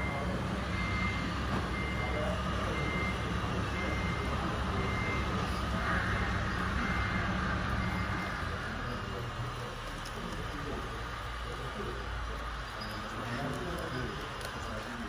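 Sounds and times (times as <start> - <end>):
reversing beeper: 0.0 - 9.7
low engine sound: 0.0 - 15.0.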